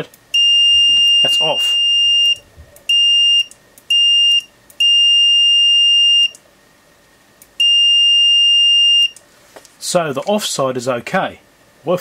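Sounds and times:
multimeter beeping: 0.3 - 6.4, 7.6 - 9.2.

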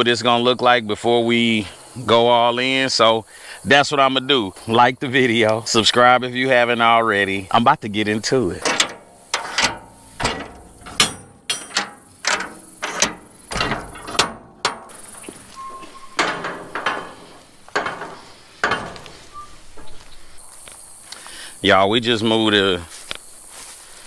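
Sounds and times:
metal clanks of container doors: 8.3 - 20.4
short metal squeak: 8.6 - 20.4.

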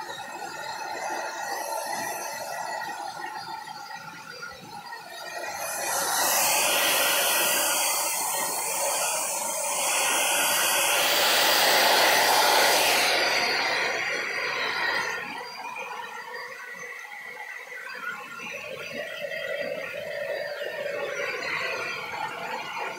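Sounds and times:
hair dryer blowing: 0.0 - 3.5, 5.2 - 15.6.

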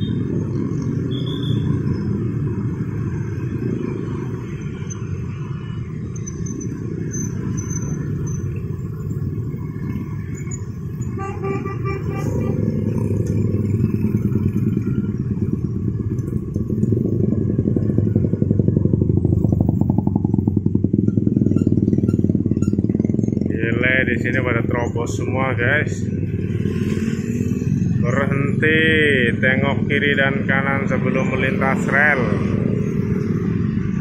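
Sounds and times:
motorcycles and traffic passing: 0.0 - 34.0
vehicle horn: 11.0 - 12.8.

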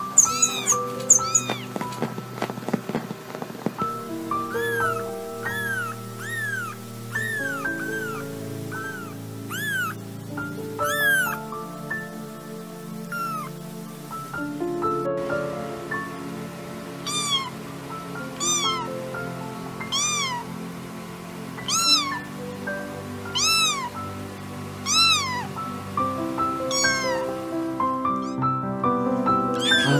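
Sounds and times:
background music: 0.0 - 29.9
kitten meowing: 0.1 - 1.8, 4.3 - 10.0, 10.8 - 11.4, 13.1 - 13.5, 17.0 - 17.5, 18.4 - 18.9, 19.8 - 20.4, 21.6 - 22.2, 23.3 - 23.9, 24.8 - 25.5, 26.7 - 27.3, 28.1 - 28.5, 29.5 - 29.9.

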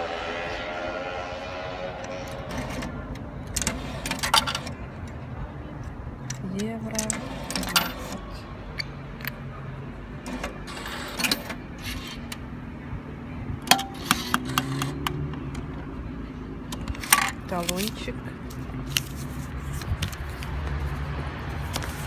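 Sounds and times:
street traffic hum: 0.0 - 22.0
coin mechanism clicks: 6.4 - 8.2, 13.7 - 15.1.

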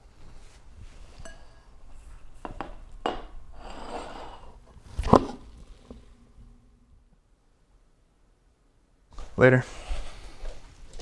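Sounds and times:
ceramic bowl scraping on wooden floor: 3.5 - 6.0.

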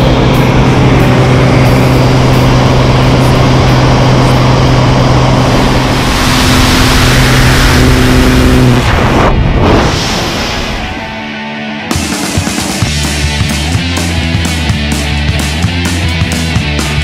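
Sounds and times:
loud wind rush: 0.0 - 11.4
propeller engine droning: 0.0 - 17.0.

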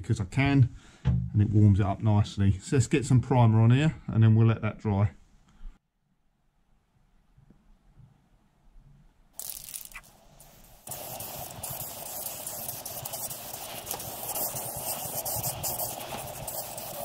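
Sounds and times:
aerosol spray can hissing: 9.4 - 17.0.

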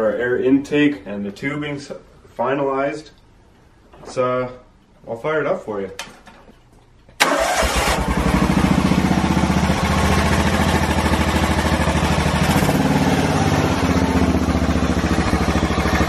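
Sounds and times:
mower engine running: 7.2 - 16.0.

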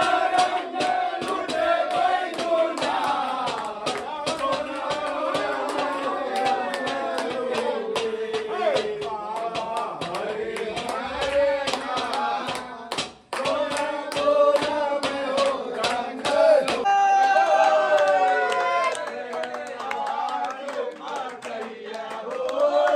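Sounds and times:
hand clapping: 0.0 - 16.9, 17.9 - 22.9
song with singing: 0.0 - 17.0.

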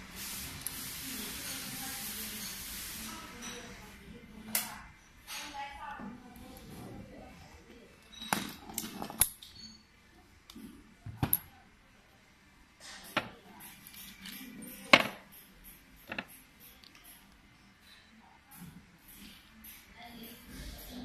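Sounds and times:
metal parts clinking and knocking: 8.0 - 9.8, 11.1 - 11.5, 13.1 - 17.2.

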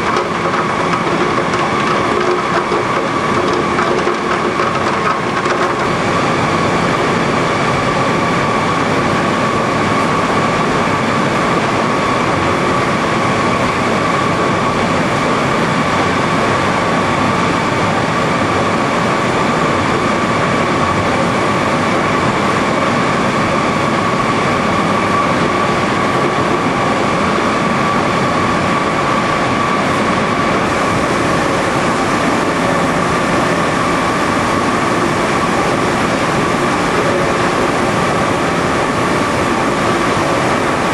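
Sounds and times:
constant high whine: 0.0 - 40.9
machinery drone: 0.0 - 40.9.

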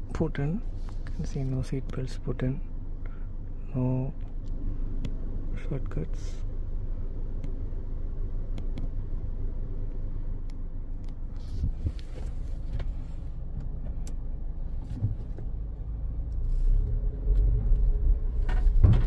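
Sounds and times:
car engine hum inside cabin: 0.0 - 19.0.

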